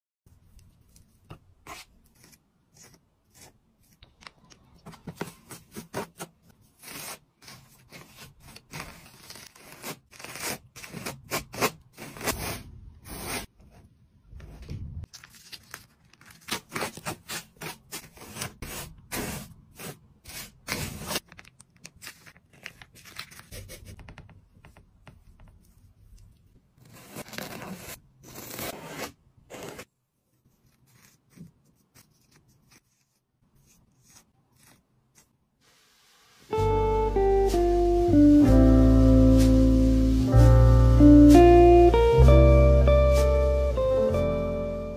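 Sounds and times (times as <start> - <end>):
palette knife scraping paste: 1.6 - 4.2, 5.2 - 13.9, 16.6 - 21.2, 26.8 - 35.4.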